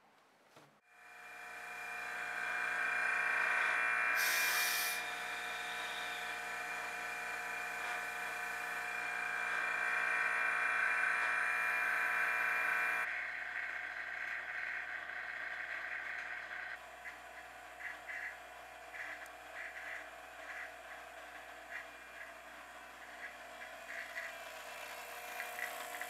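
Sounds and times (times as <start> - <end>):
vacuum pump humming: 0.9 - 26.0
air hissing: 2.0 - 13.0.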